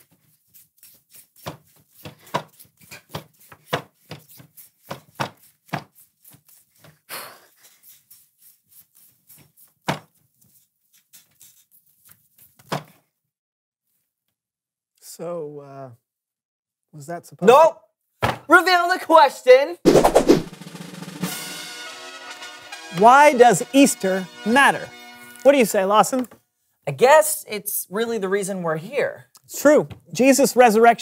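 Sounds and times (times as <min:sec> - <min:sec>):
rope swish: 0:19.9 - 0:20.5.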